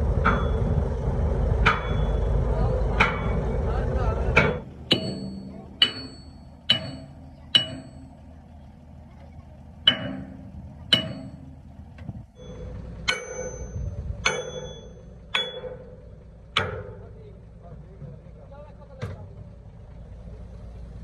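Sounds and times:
low rumble: 0:00.0 - 0:21.0
sledgehammer striking steel: 0:00.1 - 0:00.8, 0:01.5 - 0:03.6, 0:04.3 - 0:08.2, 0:09.8 - 0:11.6, 0:12.4 - 0:17.2.

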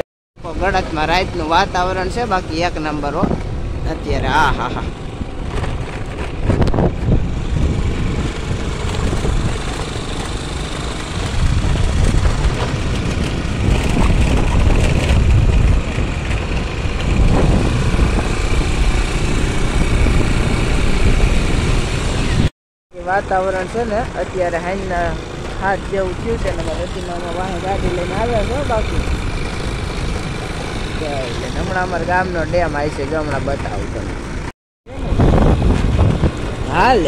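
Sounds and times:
vehicle engine: 0:00.0 - 0:37.0
wind on microphone: 0:00.6 - 0:22.5, 0:33.7 - 0:37.0.

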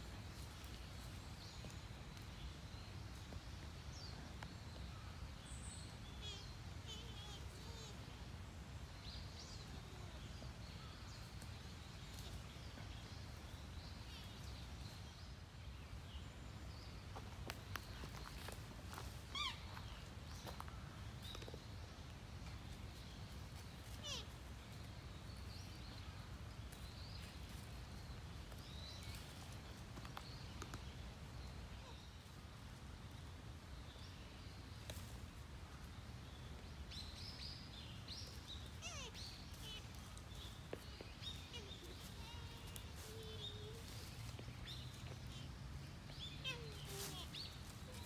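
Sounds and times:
hooves stepping in dry leaves: 0:00.0 - 0:03.9, 0:22.7 - 0:30.9, 0:38.1 - 0:48.0.

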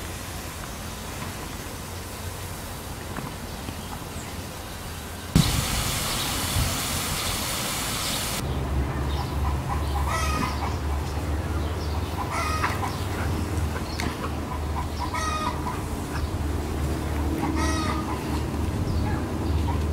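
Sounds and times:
water hissing from sprinkler: 0:00.0 - 0:08.4.

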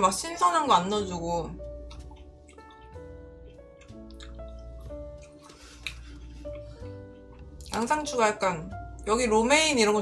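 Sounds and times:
soft background music: 0:00.0 - 0:10.0
person chewing: 0:01.8 - 0:07.8.

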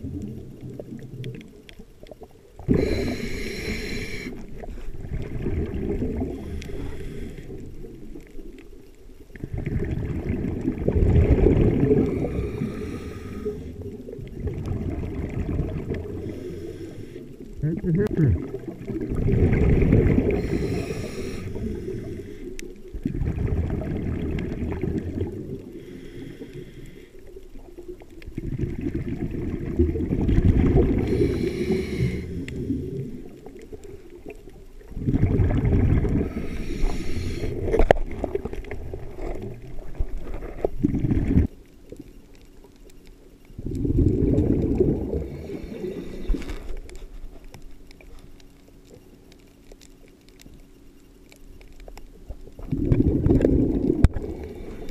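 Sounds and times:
underwater exhaled bubbles: 0:00.0 - 0:50.4, 0:51.6 - 0:54.9.

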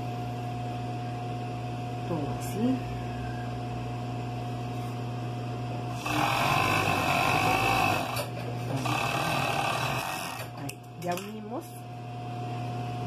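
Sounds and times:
steady electric hum: 0:00.0 - 0:13.0
overlock sewing machine running: 0:06.0 - 0:10.6.

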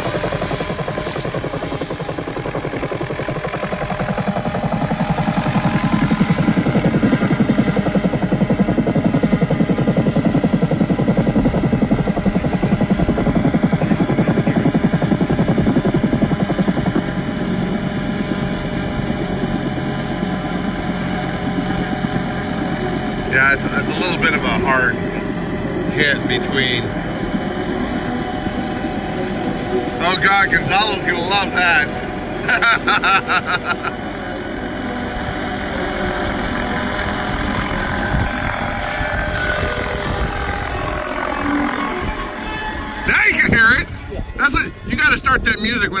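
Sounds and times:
model helicopter rotor whir: 0:00.0 - 0:46.0
rhythmic pulsing tone: 0:00.0 - 0:46.0.

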